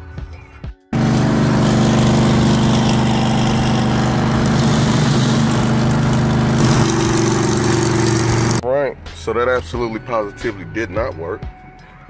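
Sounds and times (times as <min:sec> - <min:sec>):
motorcycle engine running: 0:01.0 - 0:08.6
road noise: 0:01.0 - 0:08.6.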